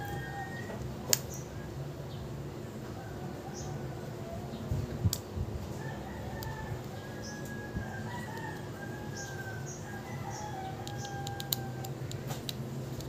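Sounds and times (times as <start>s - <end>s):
rooster crowing: 0.0s - 0.9s, 2.8s - 4.6s, 5.7s - 11.9s
metal pick clicking on phone frame: 10.8s - 13.0s.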